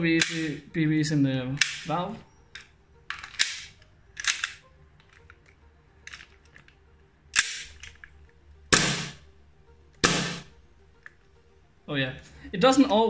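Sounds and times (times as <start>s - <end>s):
airsoft pistol shots: 8.7s - 9.2s, 10.0s - 10.5s.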